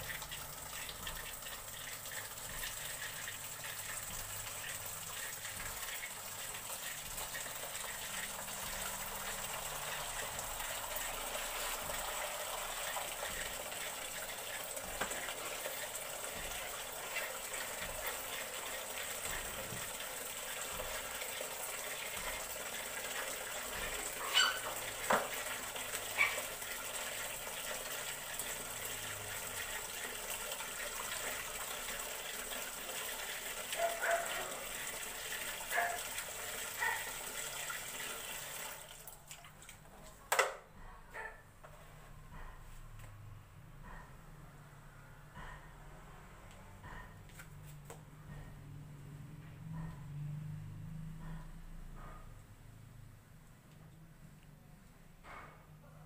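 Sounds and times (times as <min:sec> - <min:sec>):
water running into plastic basin: 0:00.0 - 0:40.5.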